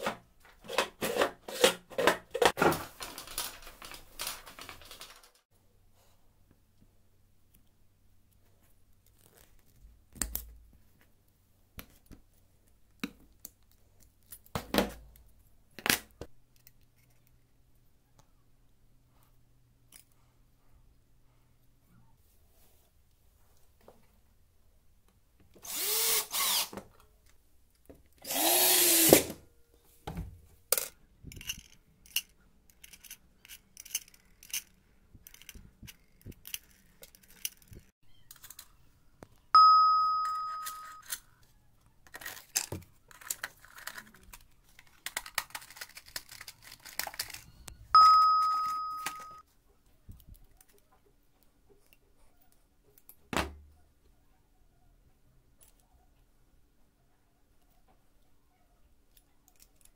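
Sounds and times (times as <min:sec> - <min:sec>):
cordless drill driving screws: 0:25.6 - 0:26.8, 0:28.2 - 0:29.3
metal tools clicking and rattling: 0:30.8 - 0:38.7
ringing dings: 0:39.6 - 0:41.0, 0:47.9 - 0:49.4.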